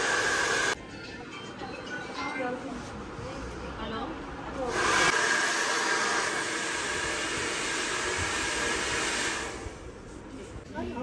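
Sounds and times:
hair dryer blowing: 0.0 - 0.8, 4.6 - 10.0.

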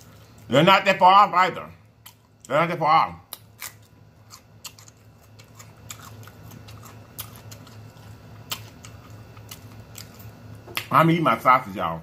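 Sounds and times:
crisp chewing crunches: 3.2 - 10.9.

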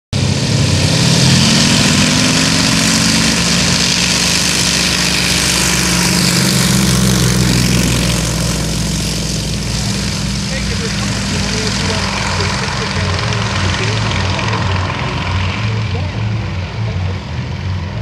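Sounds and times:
propeller plane engine roaring: 0.1 - 18.0.

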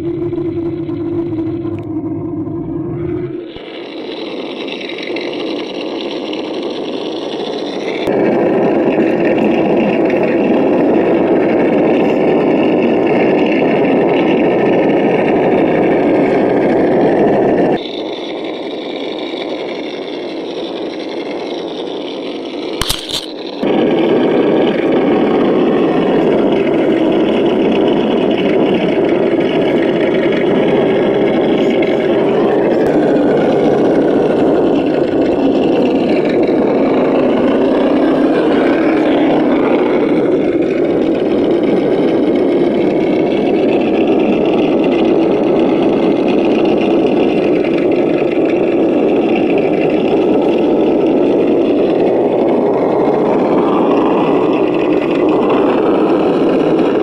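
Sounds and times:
simulated engine sound: 0.0 - 57.0
sharp click: 22.8 - 23.6.

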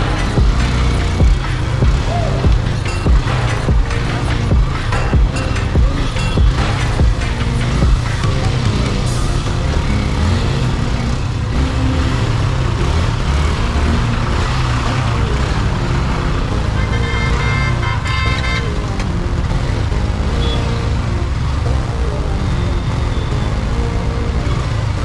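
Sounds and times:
background music: 0.0 - 25.0
road and traffic noise: 0.0 - 25.0
vehicle horn: 16.6 - 18.8, 20.3 - 20.8.

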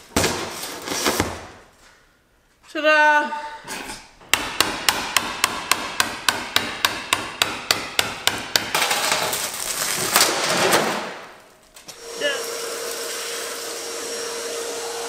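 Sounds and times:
hammer striking chisel: 4.3 - 8.9
broken glass crunching: 8.7 - 11.9.

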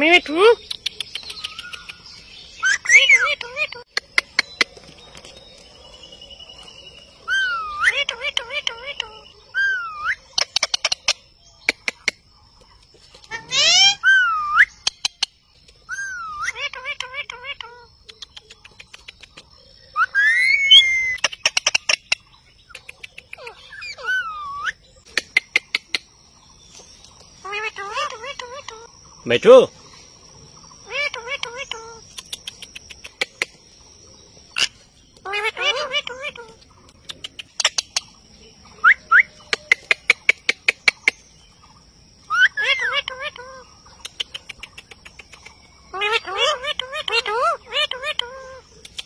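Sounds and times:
parakeet sharp clicks: 0.6 - 2.0, 18.2 - 19.5, 22.8 - 23.5, 36.8 - 38.0, 44.0 - 45.6
parakeet rising chirps: 0.6 - 3.8
parakeet warbling call: 2.6 - 3.9, 7.2 - 10.8, 13.3 - 15.2, 15.9 - 17.9, 23.4 - 24.8, 27.4 - 28.9, 30.8 - 32.0, 34.6 - 36.6, 42.3 - 43.7, 45.9 - 48.7
whistled bird call: 19.9 - 21.9, 38.8 - 40.0.

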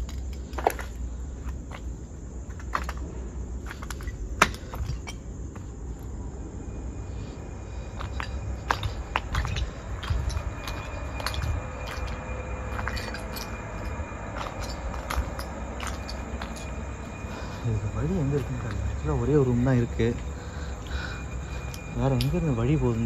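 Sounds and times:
footsteps crunching on rubble: 0.0 - 5.8, 7.7 - 18.9
crickets chirping: 0.0 - 23.0.

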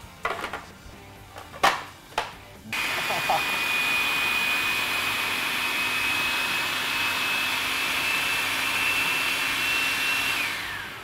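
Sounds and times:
food processor motor whining: 2.8 - 11.0.

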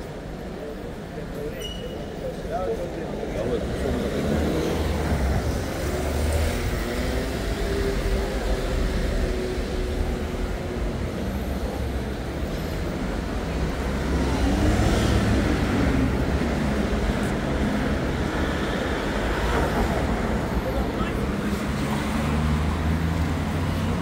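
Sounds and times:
street traffic passing: 0.0 - 24.0
vehicle accelerating by: 3.4 - 10.0, 13.7 - 20.2.

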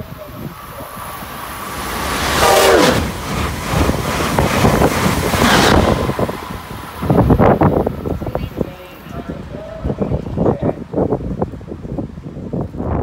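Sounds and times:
train rushing past: 0.0 - 11.8
train horn dropping in pitch: 2.4 - 3.0.

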